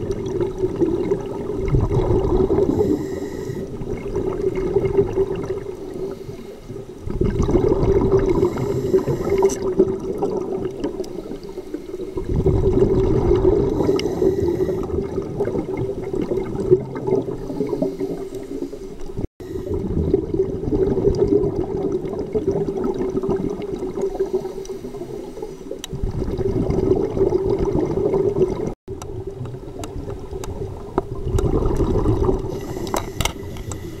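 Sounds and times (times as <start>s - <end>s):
underwater exhaled bubbles gurgling: 0.0s - 34.0s.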